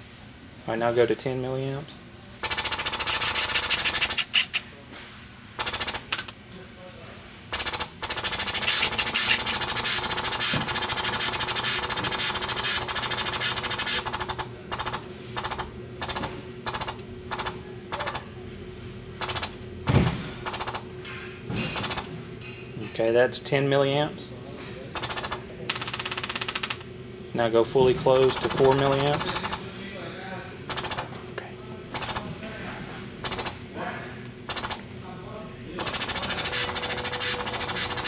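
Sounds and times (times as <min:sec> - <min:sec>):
pneumatic actuator air hissing: 0:08.4 - 0:14.1.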